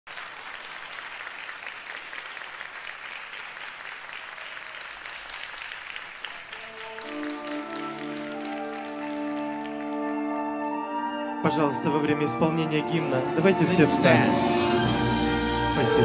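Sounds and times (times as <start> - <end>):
audience applause: 0.1 - 10.7
sustained musical chord: 6.7 - 16.0.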